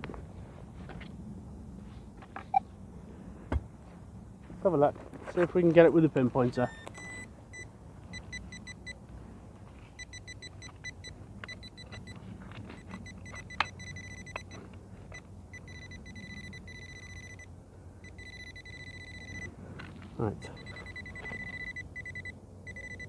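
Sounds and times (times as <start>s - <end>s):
pinpointer beeping: 6.6s - 9.0s, 10.0s - 19.5s, 20.4s - 23.0s.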